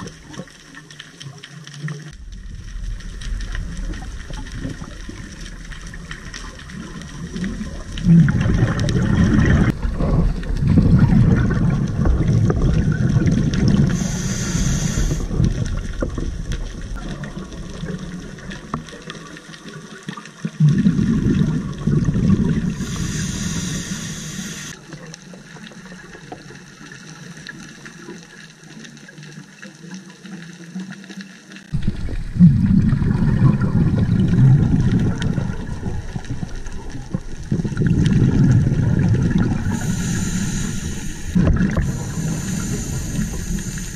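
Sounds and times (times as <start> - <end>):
exhaled bubbles underwater: 0.0 - 43.9
regulator hiss: 13.9 - 15.4, 22.7 - 24.8, 39.6 - 43.9.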